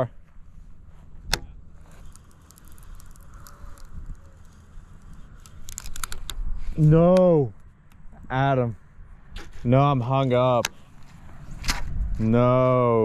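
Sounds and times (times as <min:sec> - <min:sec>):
fishing reel ticking: 0:01.8 - 0:06.3.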